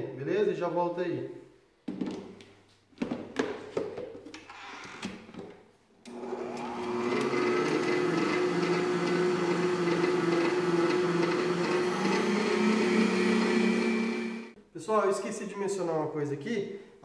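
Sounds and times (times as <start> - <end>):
stand mixer motor whine: 6.1 - 14.6.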